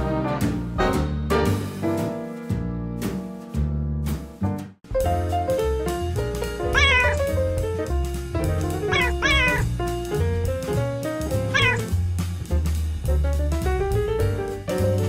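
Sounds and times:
music with beat and bass: 0.5 - 15.0
cat meowing: 6.7 - 7.4, 8.8 - 9.8, 11.5 - 11.9.

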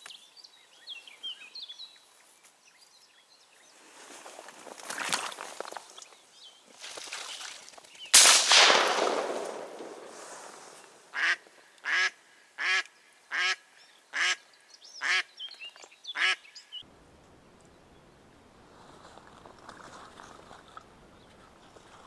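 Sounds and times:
shotgun shot with echo: 8.2 - 10.7
duck quacking: 11.1 - 13.6, 14.2 - 14.4, 16.2 - 16.4.

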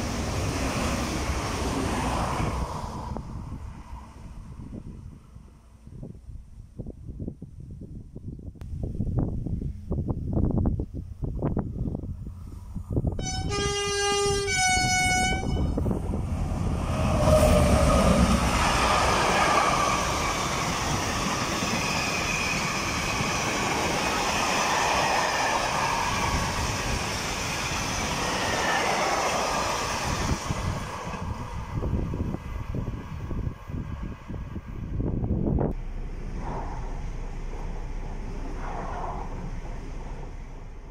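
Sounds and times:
freight train passing: 0.0 - 6.0, 9.5 - 40.9
two-tone train horn: 13.2 - 15.9.

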